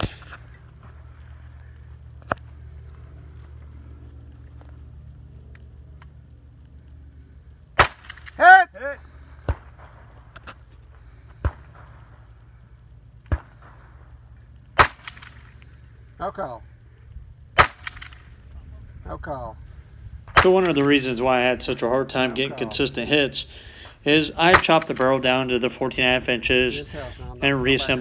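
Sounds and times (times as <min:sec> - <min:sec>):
rifle shots: 0:07.7 - 0:08.5, 0:09.3 - 0:12.3, 0:13.2 - 0:15.6, 0:17.5 - 0:18.4, 0:20.2 - 0:21.8, 0:24.1 - 0:25.7.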